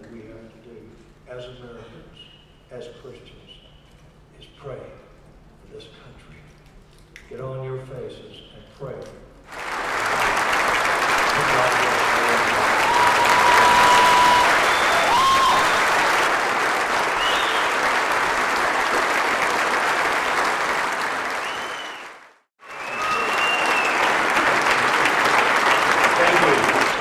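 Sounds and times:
audience applause: 0:09.5 - 0:27.0.

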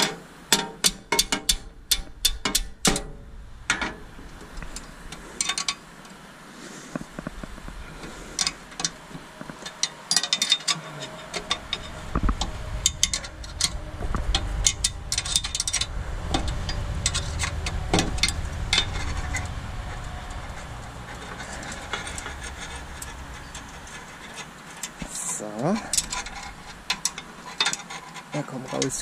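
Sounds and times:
low rumble: 0:01.7 - 0:05.4, 0:07.0 - 0:09.8, 0:10.8 - 0:27.4
hand tools clinking on metal: 0:09.6 - 0:12.0.

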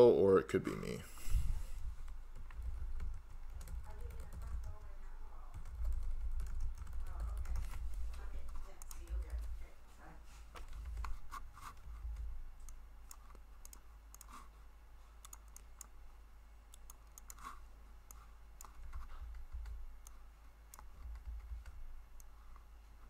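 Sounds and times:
low steady hum: 0:00.0 - 0:23.0
computer keyboard typing: 0:02.1 - 0:09.6, 0:10.6 - 0:14.4, 0:15.2 - 0:15.9, 0:16.7 - 0:22.4.

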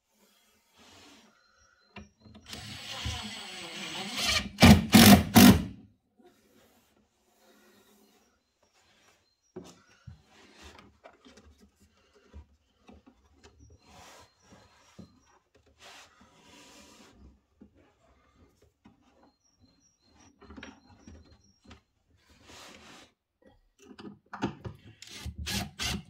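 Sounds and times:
impact driver motor running: 0:02.5 - 0:05.7
impact driver hammering bursts: 0:04.0 - 0:05.8.

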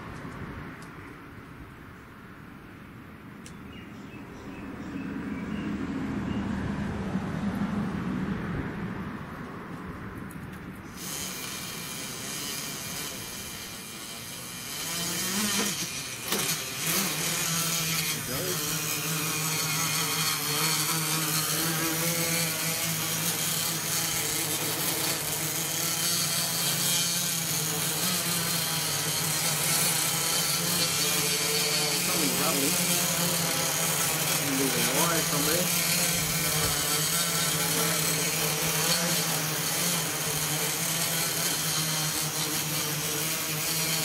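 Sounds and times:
quadcopter motors whining: 0:10.3 - 0:44.0.

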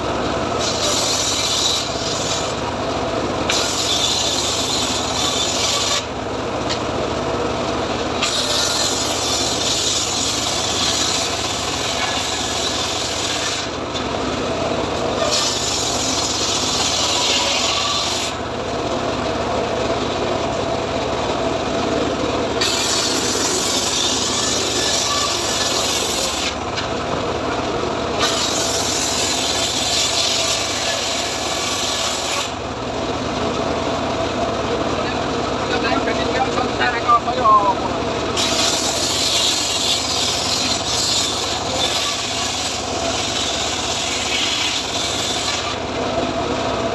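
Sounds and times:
table saw running: 0:00.0 - 0:46.9
high-pitched saw cutting wood: 0:00.6 - 0:02.6, 0:03.4 - 0:06.2, 0:08.1 - 0:14.0, 0:15.0 - 0:18.5, 0:22.5 - 0:26.8, 0:28.2 - 0:32.6, 0:38.3 - 0:45.9.

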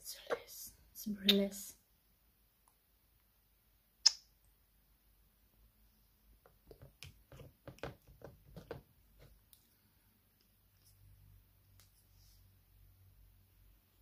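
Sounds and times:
soft taps and pats: 0:06.4 - 0:09.4.

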